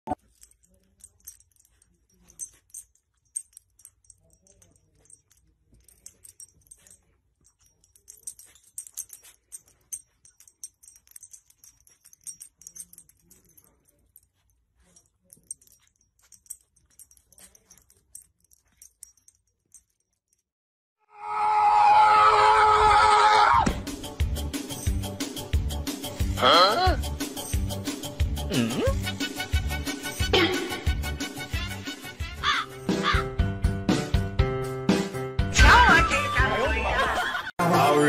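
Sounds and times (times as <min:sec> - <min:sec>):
soft low vocal sounds: 0:28.4 - 0:29.1.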